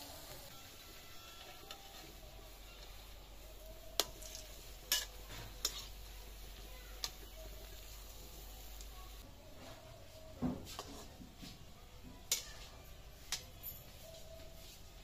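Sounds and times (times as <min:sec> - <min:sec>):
fritters frying in oil: 0:00.0 - 0:09.2
metal ladle clinking on iron pan: 0:04.0 - 0:05.8.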